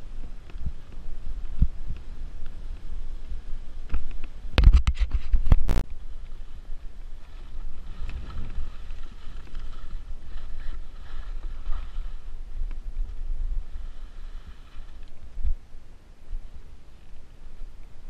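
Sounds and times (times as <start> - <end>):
wind on microphone: 0.0 - 18.0
skis scraping through slush: 6.0 - 15.4.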